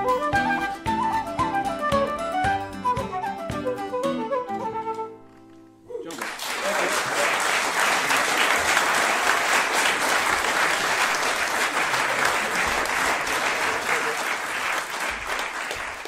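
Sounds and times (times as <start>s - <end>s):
music: 0.0s - 6.0s
audience applauding: 6.1s - 16.0s.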